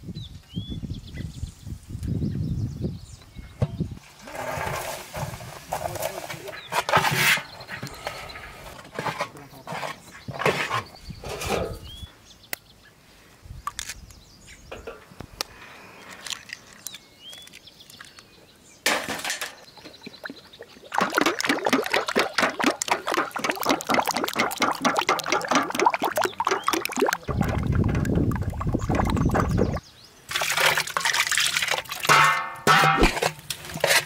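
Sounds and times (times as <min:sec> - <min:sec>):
eggs cracking: 0:19.3 - 0:32.1
fork beating eggs in metal bowl: 0:20.9 - 0:29.8.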